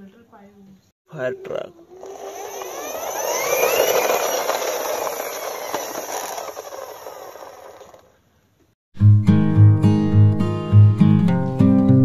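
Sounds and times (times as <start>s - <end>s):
toy truck wheels whirring: 1.8s - 8.2s
toy truck rolling and rattling: 1.9s - 8.2s.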